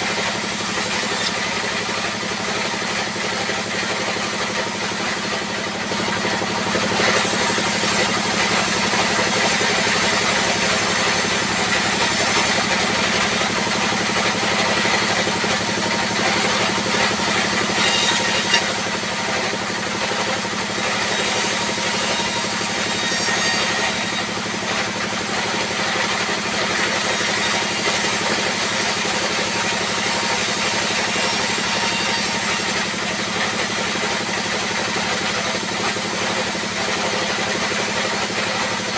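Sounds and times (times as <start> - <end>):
engine running: 0.0 - 38.9
band saw blade hissing: 7.0 - 19.3.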